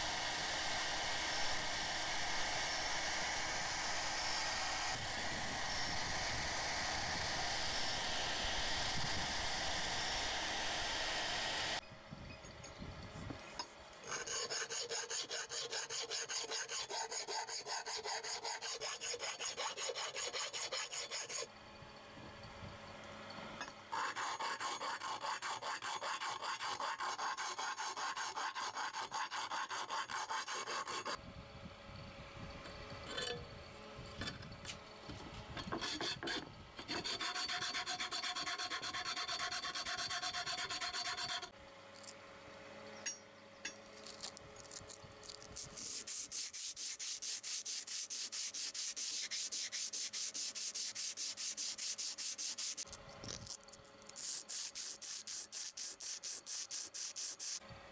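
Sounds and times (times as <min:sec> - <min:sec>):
hand file rasping on metal blade: 0:14.0 - 0:21.5, 0:23.9 - 0:31.2, 0:35.6 - 0:41.5, 0:45.3 - 0:57.6.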